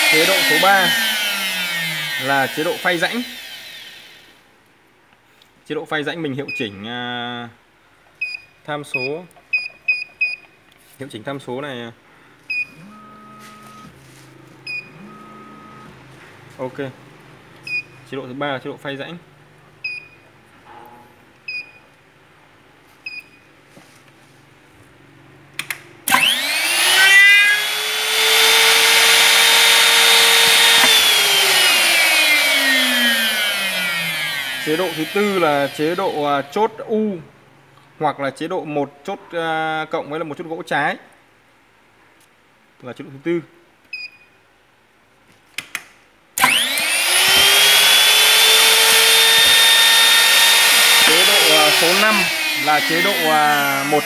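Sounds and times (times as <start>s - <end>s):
spindle motor whine: 0.0s - 4.3s, 26.1s - 36.5s, 46.4s - 54.0s
keypad beeps: 8.2s - 10.5s.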